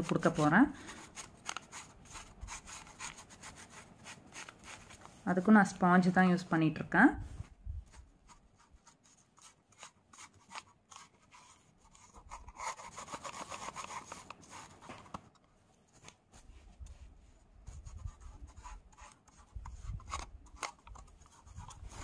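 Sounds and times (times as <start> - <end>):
sponge dabbing paint on plastic: 16.3 - 22.0.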